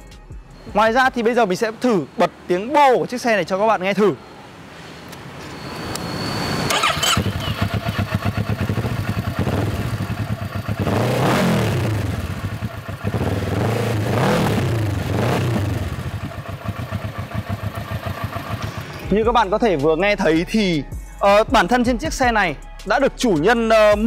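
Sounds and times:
motorcycle engine idling and revving: 6.6 - 19.2.

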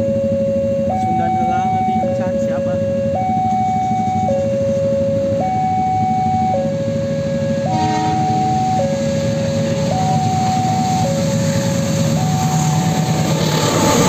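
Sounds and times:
two-tone crossing alarm: 0.0 - 14.0
train rumbling: 7.4 - 14.0.

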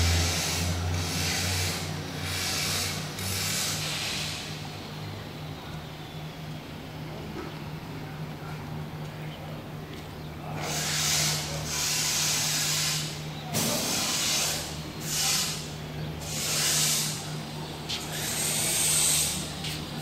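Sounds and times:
bursts of hissing: 10.6 - 17.3, 18.0 - 19.8.

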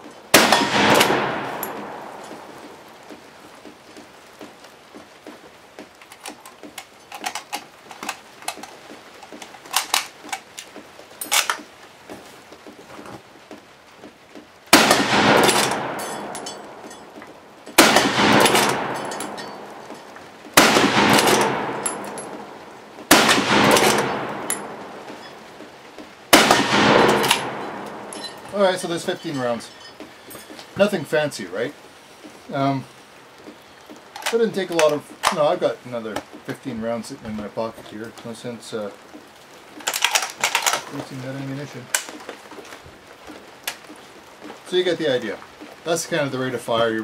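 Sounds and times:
rifle shots: 0.3 - 2.9, 14.7 - 17.0, 17.7 - 25.5, 26.3 - 28.5
rifle bolt clicks and clacks: 5.9 - 11.7, 14.3 - 22.5, 23.1 - 25.3, 26.0 - 28.5, 33.9 - 35.4, 39.1 - 41.1, 41.9 - 44.0.

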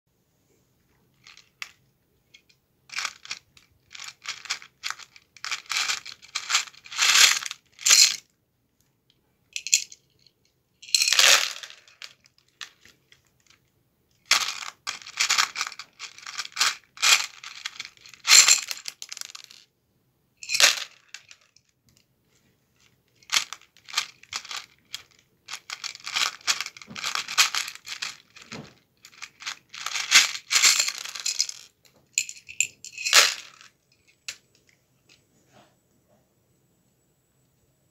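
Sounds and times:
plastic pieces clattering: 2.4 - 8.2, 10.8 - 13.6, 14.3 - 19.6, 20.4 - 21.6, 23.2 - 34.3.

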